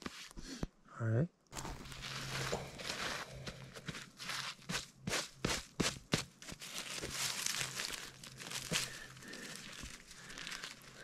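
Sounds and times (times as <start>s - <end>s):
pine needles and soil crackling: 1.5s - 5.3s, 6.4s - 11.0s.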